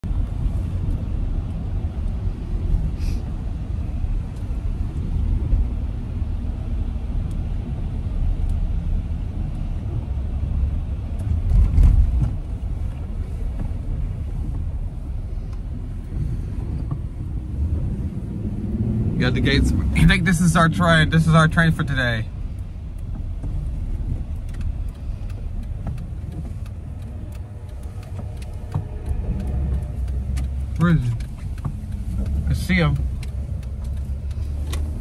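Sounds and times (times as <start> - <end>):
car cabin road and engine rumble: 0.0 - 35.0.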